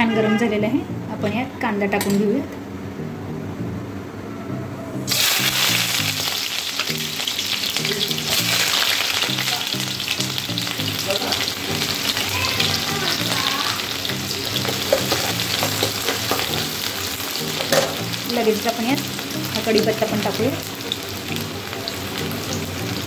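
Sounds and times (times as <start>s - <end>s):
onions sizzling in a frying pan: 5.1s - 23.0s.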